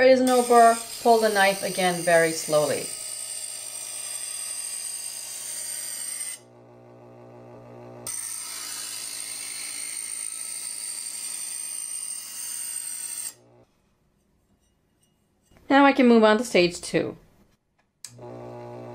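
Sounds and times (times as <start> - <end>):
steel being ground: 0.0 - 6.4, 8.1 - 15.6
electric sharpener motor hum: 0.2 - 13.6, 18.1 - 18.9.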